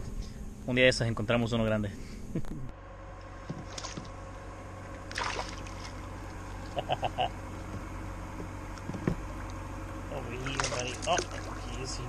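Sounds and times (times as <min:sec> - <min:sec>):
water along kayak hull: 0:03.3 - 0:12.0
fish thrashing splash: 0:03.6 - 0:04.1, 0:05.1 - 0:06.1, 0:10.4 - 0:11.9.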